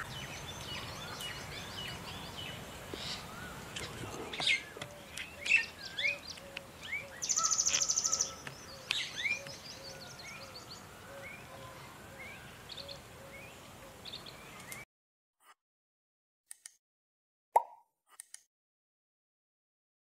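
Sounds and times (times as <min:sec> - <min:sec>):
small birds chirping: 0:00.0 - 0:14.9.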